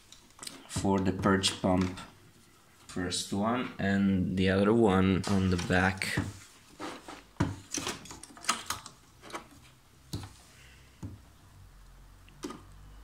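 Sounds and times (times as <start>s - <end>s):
plastic parts clicking and knocking: 7.4s - 10.4s.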